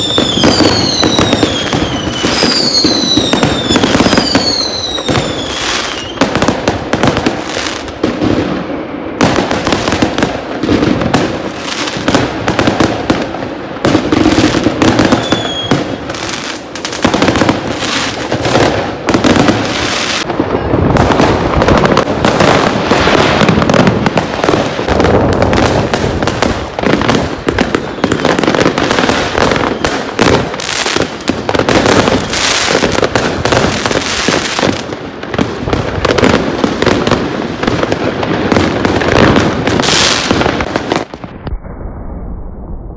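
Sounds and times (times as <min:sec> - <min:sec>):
firework whistle: 0:00.0 - 0:06.3, 0:14.9 - 0:16.6, 0:27.6 - 0:31.0
fireworks banging and crackling: 0:00.0 - 0:42.8.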